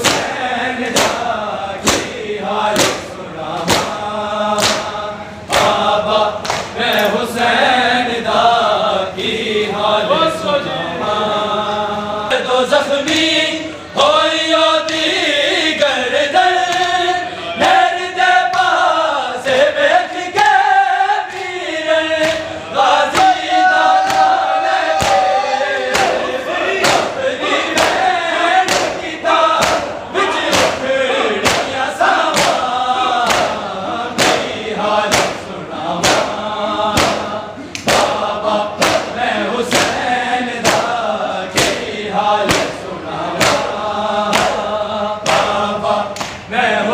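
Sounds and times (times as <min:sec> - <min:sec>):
men chanting in unison: 0:00.0 - 0:46.9
hands slapping chests: 0:04.6 - 0:04.9, 0:06.4 - 0:06.8, 0:22.2 - 0:22.5, 0:28.7 - 0:29.0, 0:29.6 - 0:29.9, 0:31.4 - 0:32.6, 0:34.2 - 0:34.5, 0:35.1 - 0:35.4, 0:36.9 - 0:38.2, 0:44.3 - 0:44.6, 0:45.2 - 0:46.5.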